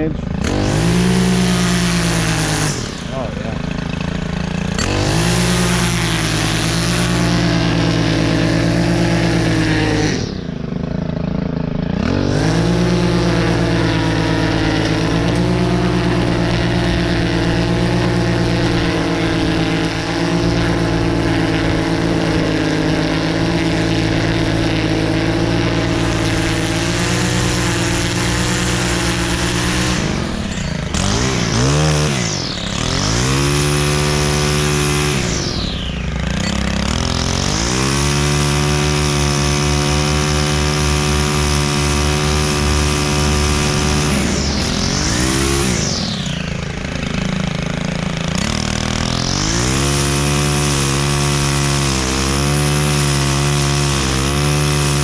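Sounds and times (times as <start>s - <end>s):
string trimmer engine cutting grass: 0.0s - 55.0s.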